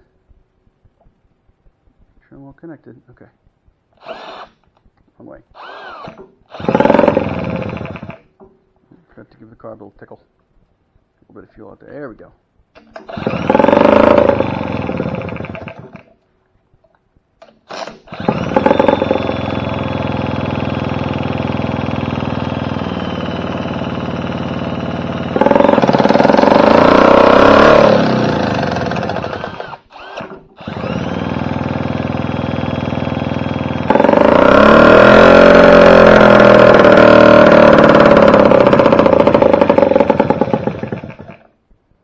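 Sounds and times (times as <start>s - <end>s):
cordless drill spinning: 4.0s - 4.7s, 5.6s - 8.2s, 12.8s - 16.1s, 17.4s - 41.5s
outboard motor running: 6.6s - 8.2s, 13.1s - 16.0s, 18.1s - 29.7s, 30.7s - 41.4s.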